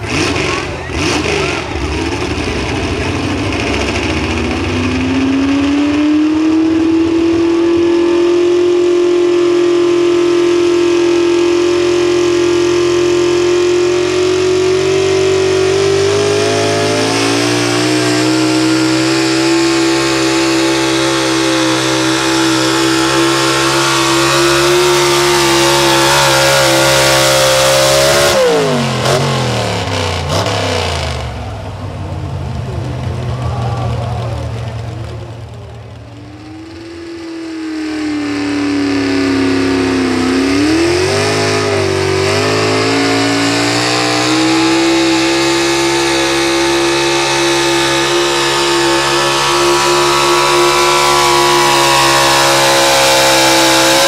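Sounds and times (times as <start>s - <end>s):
pulling truck engine at full throttle: 0.0s - 54.0s.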